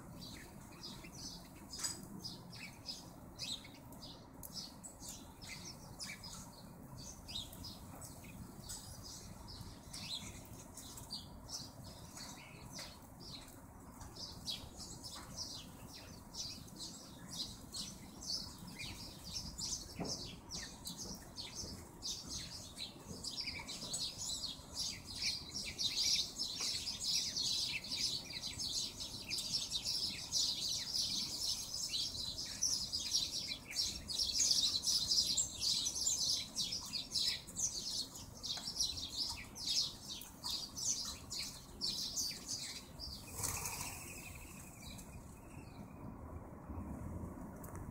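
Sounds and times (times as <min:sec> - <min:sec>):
small birds chirping: 0:00.0 - 0:46.5
rush of wingbeats: 0:43.2 - 0:44.7.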